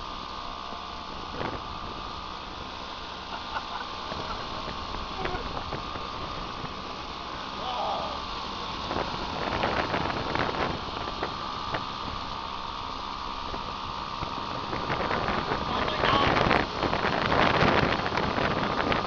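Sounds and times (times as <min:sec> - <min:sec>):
faint steady whine: 0:00.0 - 0:19.0
vehicle engine and road noise: 0:00.0 - 0:19.0.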